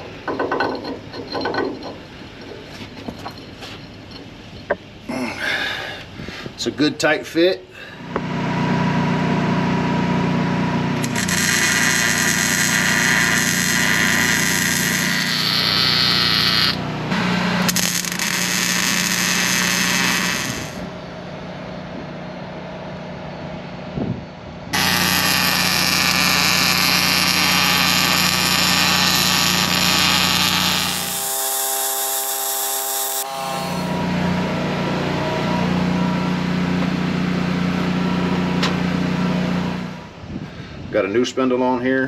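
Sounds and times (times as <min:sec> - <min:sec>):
humming tone: 0:08.0 - 0:40.3
crackling welding hiss: 0:11.0 - 0:20.9, 0:24.7 - 0:34.0
low engine hum: 0:33.9 - 0:40.4.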